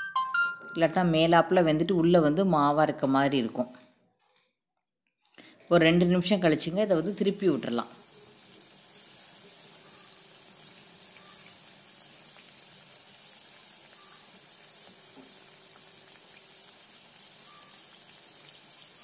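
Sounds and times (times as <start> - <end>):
food deep-frying in oil: 6.2 - 19.0.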